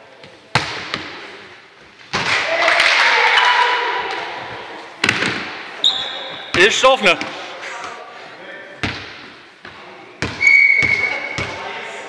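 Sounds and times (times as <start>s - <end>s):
players shouting: 2.3s - 4.9s.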